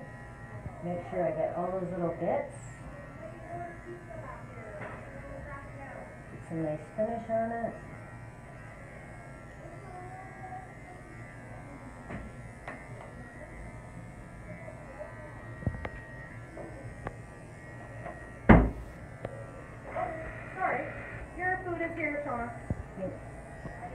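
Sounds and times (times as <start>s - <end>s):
pet clipper buzzing: 0.0s - 23.9s
loud knock: 18.5s - 18.8s.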